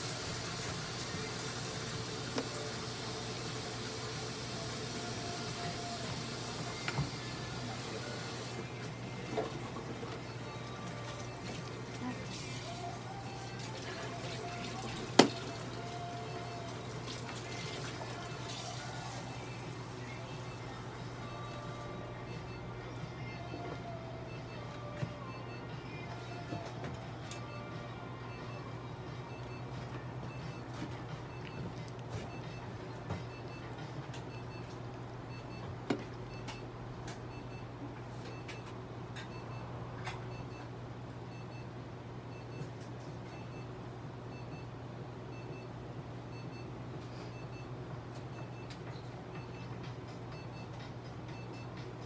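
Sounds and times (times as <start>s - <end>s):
quiet electronic beeps: 30.3s - 33.7s, 47.3s - 47.7s, 48.3s - 51.9s.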